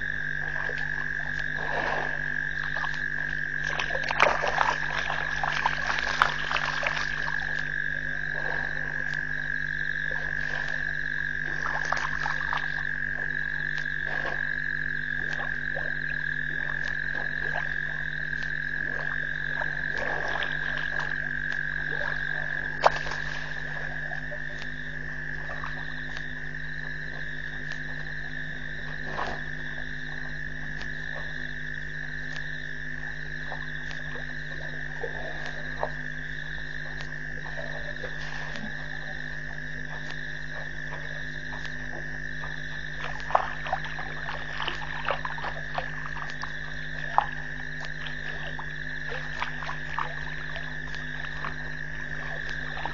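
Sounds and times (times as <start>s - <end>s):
frogs calling in chorus: 0.0s - 52.9s
low steady hum: 0.0s - 52.9s.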